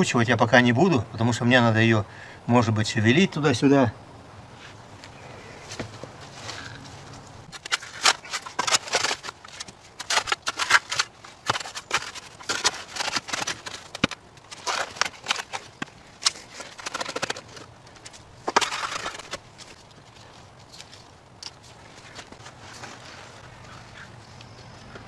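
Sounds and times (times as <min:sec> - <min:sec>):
shovel scraping and crunching soil: 0:05.6 - 0:24.1.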